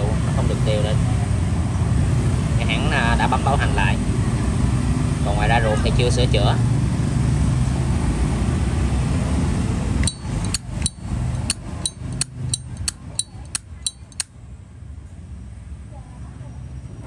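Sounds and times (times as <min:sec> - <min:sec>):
lighter lid clinking: 0:10.0 - 0:14.3.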